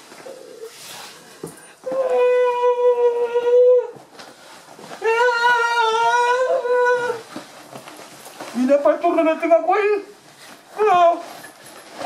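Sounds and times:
man wailing: 0:05.0 - 0:07.2.

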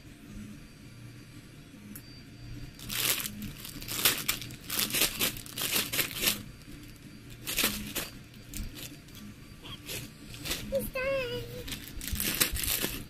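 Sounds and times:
plastic chip bag crinkling: 0:02.8 - 0:09.2, 0:11.6 - 0:13.0.

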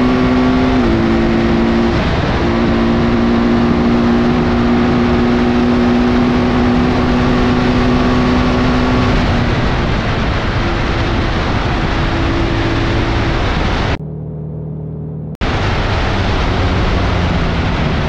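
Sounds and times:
wind rush on microphone: 0:00.0 - 0:14.0, 0:15.4 - 0:18.0
motorcycle engine note: 0:08.6 - 0:17.4.

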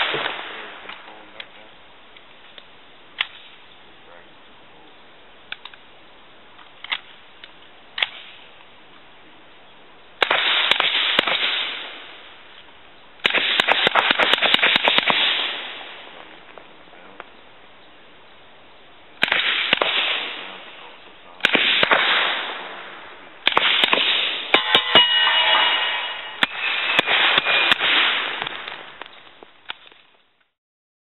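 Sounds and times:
gunshots with echo: 0:00.0 - 0:01.2, 0:10.2 - 0:12.2, 0:13.2 - 0:16.1, 0:19.2 - 0:29.0
gun handling clicks: 0:05.5 - 0:05.8, 0:06.6 - 0:08.2.

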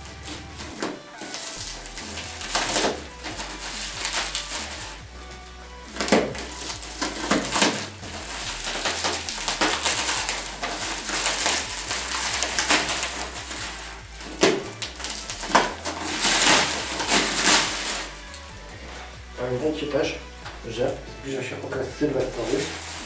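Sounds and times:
plastic wrapping crinkling: 0:00.0 - 0:23.0.

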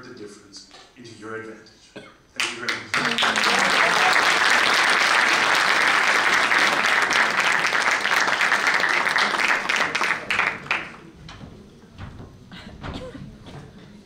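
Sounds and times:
audience applauding: 0:02.4 - 0:11.1.

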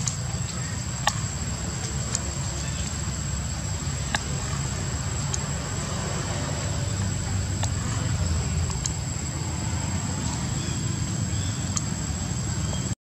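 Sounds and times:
sharp clicks: 0:00.0 - 0:09.1, 0:11.5 - 0:12.0
high-pitched insect whine: 0:00.0 - 0:13.0
steady low rumble: 0:00.0 - 0:13.0.

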